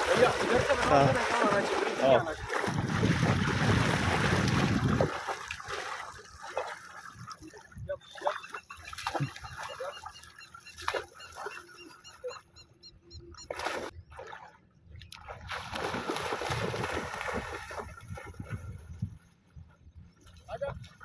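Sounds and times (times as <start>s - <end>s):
dog splashing in water: 0.0s - 7.1s, 8.2s - 10.0s, 15.1s - 18.6s.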